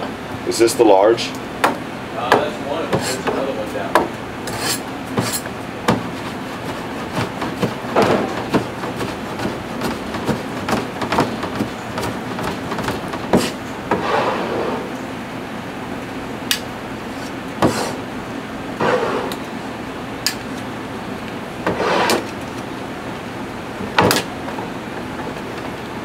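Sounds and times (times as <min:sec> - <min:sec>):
steady hum: 0:00.0 - 0:26.0
meat scraping on board: 0:04.5 - 0:14.8, 0:21.7 - 0:22.4.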